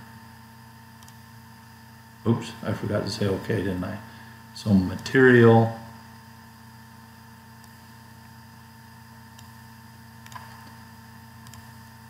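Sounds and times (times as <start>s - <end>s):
low electrical hum: 0.0s - 12.0s
mouse clicks: 1.0s - 1.2s, 10.2s - 10.8s, 11.4s - 11.7s.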